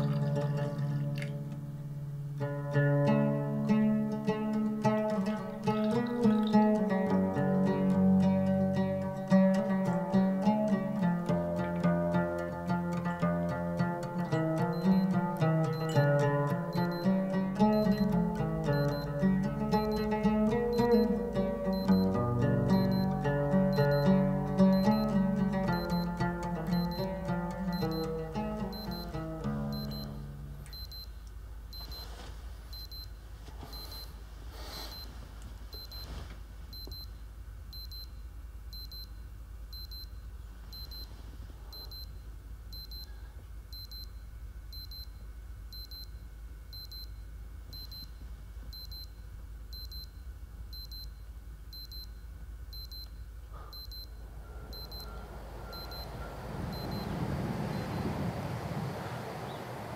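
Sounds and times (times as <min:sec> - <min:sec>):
alarm clock beeping: 0:14.3 - 0:31.1, 0:53.7 - 0:58.2.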